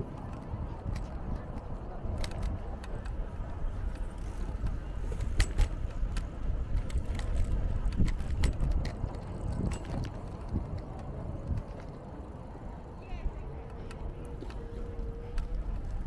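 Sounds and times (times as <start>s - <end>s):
wind on microphone: 0.0s - 12.4s
scooter wheels rumbling: 0.0s - 16.0s
sharp clicks and rattles: 3.8s - 12.1s.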